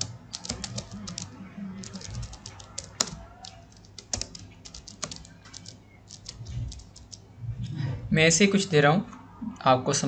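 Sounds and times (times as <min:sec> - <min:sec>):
keyboard keys clicking: 0:00.0 - 0:07.2.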